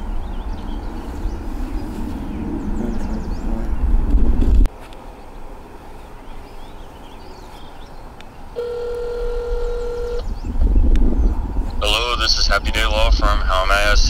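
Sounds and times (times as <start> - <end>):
wind rumble on microphone: 0.0 - 4.7, 9.5 - 14.0
phone ringing tone: 8.6 - 10.2.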